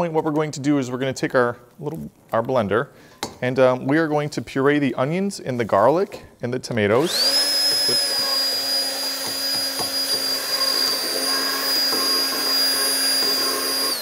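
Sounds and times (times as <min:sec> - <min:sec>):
immersion blender whining: 0:07.0 - 0:14.0.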